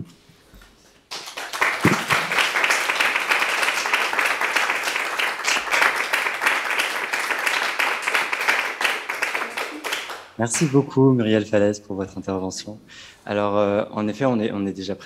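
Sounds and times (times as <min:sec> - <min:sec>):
audience applauding: 0:01.1 - 0:10.8.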